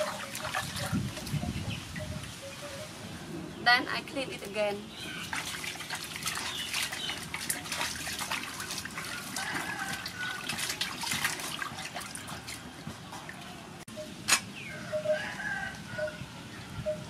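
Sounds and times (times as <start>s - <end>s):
water splashing in a metal basin: 0.0s - 2.3s, 4.9s - 13.8s.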